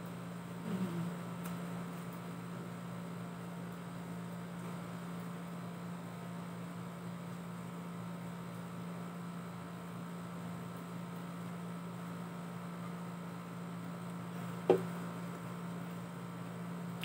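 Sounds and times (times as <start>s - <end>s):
low electrical hum: 0.0s - 17.0s
water bottle knocking on table: 14.7s - 14.9s.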